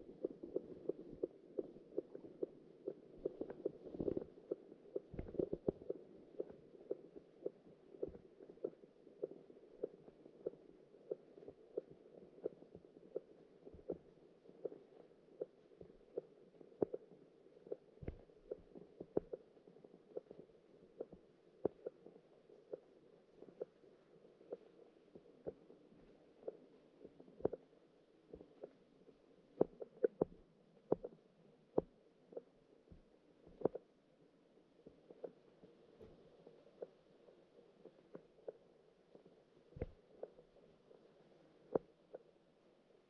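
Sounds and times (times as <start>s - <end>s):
muffled underwater ticking: 0.1s - 24.8s.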